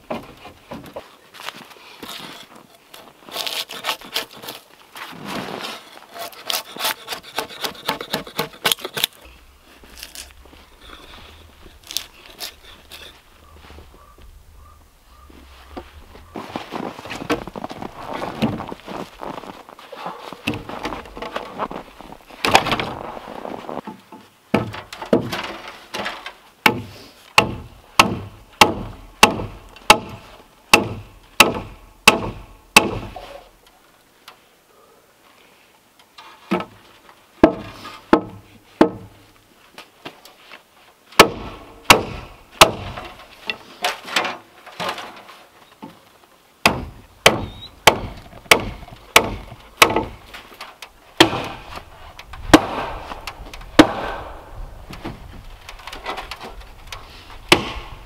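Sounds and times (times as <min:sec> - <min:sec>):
hammer striking log: 0:26.7 - 0:33.2, 0:37.4 - 0:39.1, 0:41.2 - 0:43.0, 0:46.6 - 0:50.2, 0:51.2 - 0:51.7, 0:52.5 - 0:55.2, 0:57.5 - 0:58.0.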